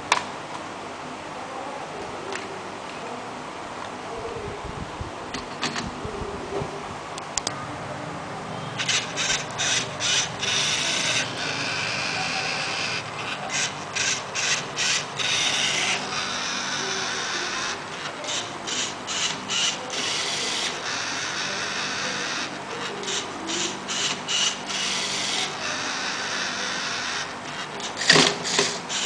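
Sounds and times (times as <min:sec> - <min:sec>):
servo motors whirring: 0:08.8 - 0:29.0.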